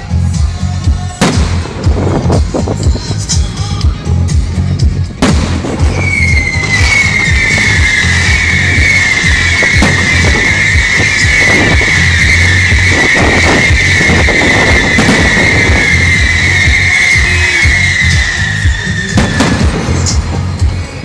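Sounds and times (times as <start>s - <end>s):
firework pops and crackles: 1.2s - 2.5s, 5.2s - 20.3s
firework whistle falling in pitch: 5.8s - 20.2s.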